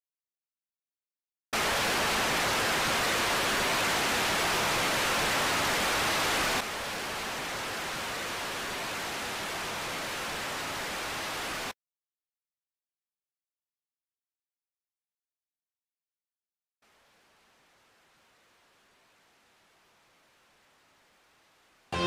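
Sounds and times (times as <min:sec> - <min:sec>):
static hiss: 0:01.6 - 0:11.7, 0:16.8 - 0:22.0.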